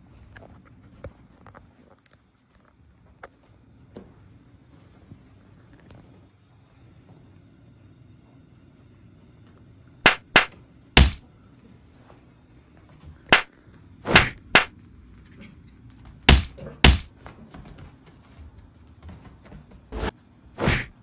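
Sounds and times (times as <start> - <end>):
sharp slap-like smacks: 10.1 - 11.2, 14.1 - 14.7, 16.3 - 17.1, 20.6 - 21.0
heavy low thud: 11.0 - 11.2, 16.3 - 17.1.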